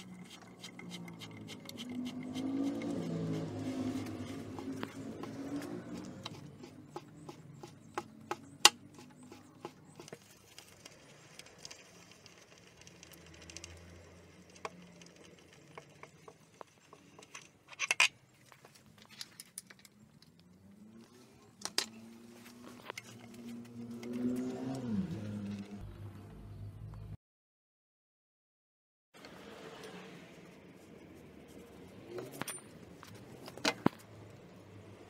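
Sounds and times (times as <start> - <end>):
bicycle crankset clicking: 10.8 - 16.2.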